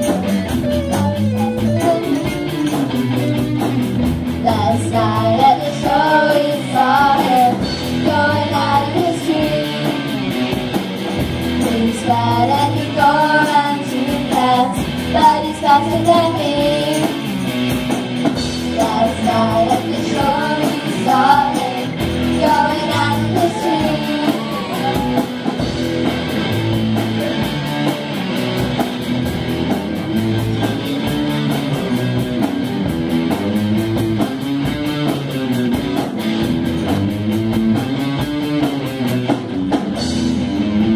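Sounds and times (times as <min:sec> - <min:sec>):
bass guitar: 0:00.0 - 0:40.9
drums: 0:00.0 - 0:40.9
electric guitars: 0:00.0 - 0:40.9
girls singing together: 0:04.5 - 0:09.8, 0:11.7 - 0:17.0, 0:18.8 - 0:25.1.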